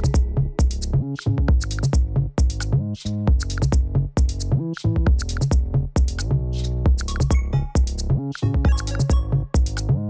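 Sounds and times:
electronic music: 0.0s - 1.9s, 6.1s - 10.0s.

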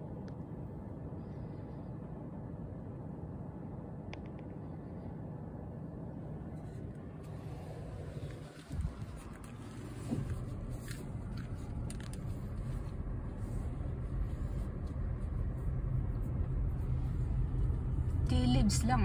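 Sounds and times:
car driving: 6.4s - 19.0s.

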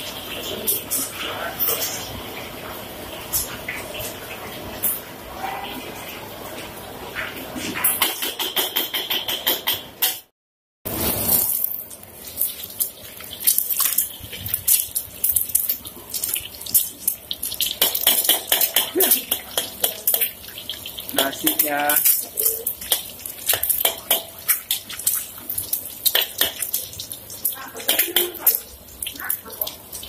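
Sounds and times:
egg sizzling in oil: 10.9s - 30.0s.

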